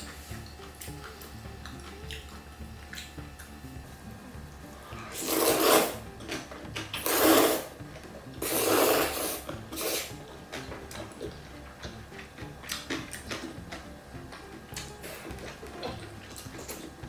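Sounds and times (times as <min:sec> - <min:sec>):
noodles being slurped: 0:04.9 - 0:11.3.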